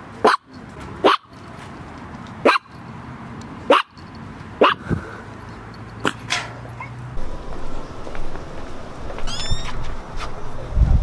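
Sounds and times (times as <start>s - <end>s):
dog barking: 0.2s - 0.4s, 1.0s - 1.3s, 2.4s - 2.7s, 3.7s - 4.0s, 4.6s - 4.8s.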